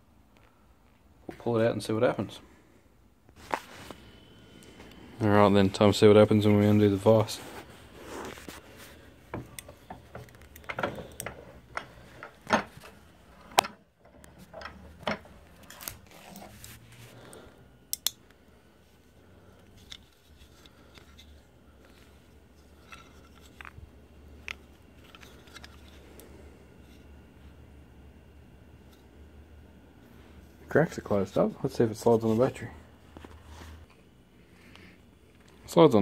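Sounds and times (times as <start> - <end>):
bench vise being unwound: 9.3 - 16.8.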